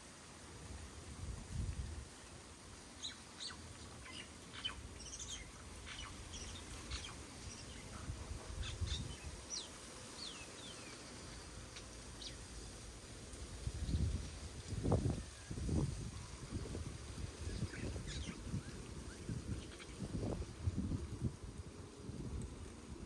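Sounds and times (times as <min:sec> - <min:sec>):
small birds chirping: 0:02.2 - 0:13.0, 0:15.0 - 0:21.0.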